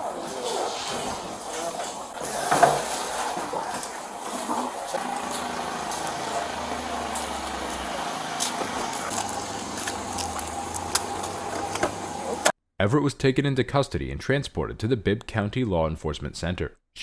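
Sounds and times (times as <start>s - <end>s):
low vehicle engine hum: 3.2s - 12.5s.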